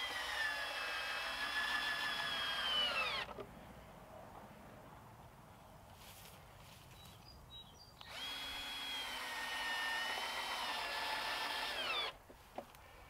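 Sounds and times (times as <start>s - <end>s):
cordless drill driving screw: 0.0s - 3.4s, 8.0s - 12.2s.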